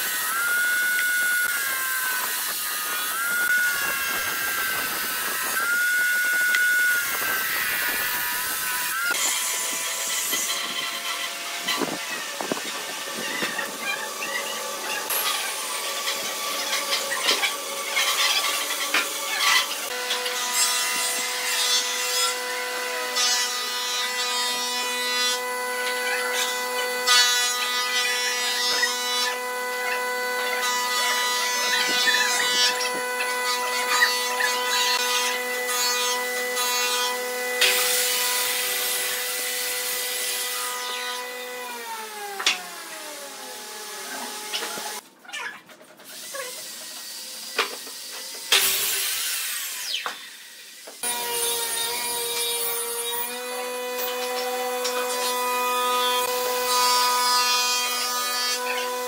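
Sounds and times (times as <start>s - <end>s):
power tool motor whining: 0.0s - 21.4s.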